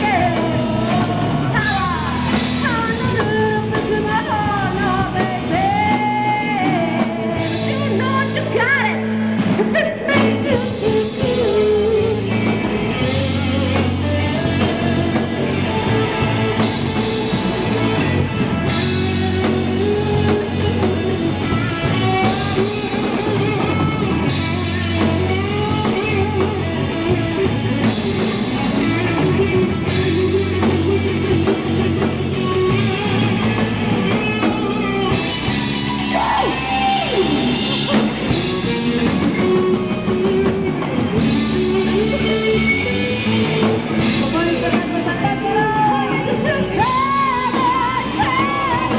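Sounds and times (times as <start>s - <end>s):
women singing into microphones: 0.0s - 9.0s, 9.6s - 15.8s, 44.3s - 48.9s
drum kit: 0.0s - 48.9s
electric guitars: 0.0s - 48.9s.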